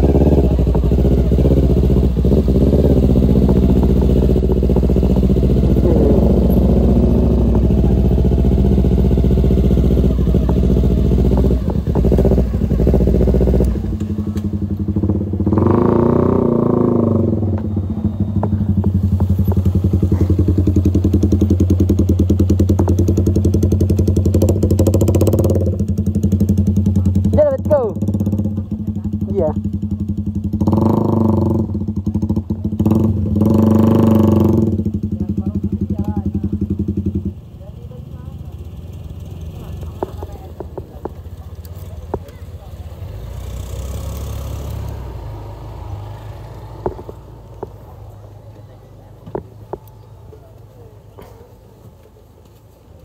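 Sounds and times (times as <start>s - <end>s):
heavy low rumble: 0.0s - 37.6s
motorcycle engine running: 0.0s - 52.2s.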